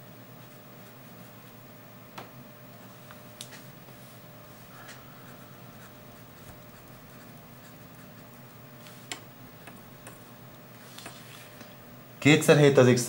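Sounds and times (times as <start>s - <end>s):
pen scratching on paper: 5.7s - 9.1s.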